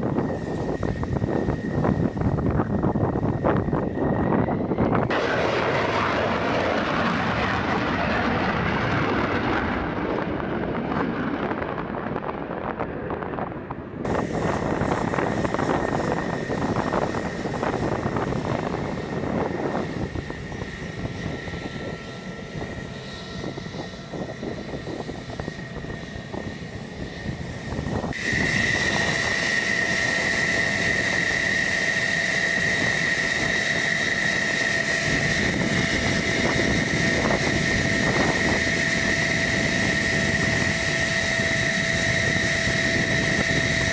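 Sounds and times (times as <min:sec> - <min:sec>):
high-pitched jet engine whine: 0:00.0 - 0:43.9
jet engine roar: 0:00.0 - 0:43.9.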